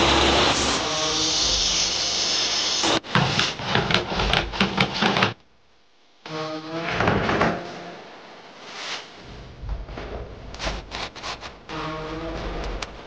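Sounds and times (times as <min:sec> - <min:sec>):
table saw cutting wood: 0:00.0 - 0:05.2.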